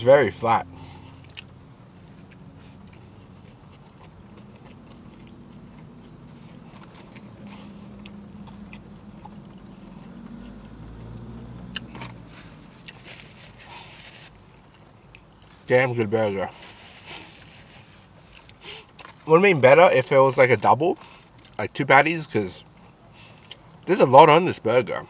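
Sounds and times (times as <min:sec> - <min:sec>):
person chewing food: 0:00.8 - 0:15.6, 0:16.6 - 0:19.2, 0:22.8 - 0:23.8.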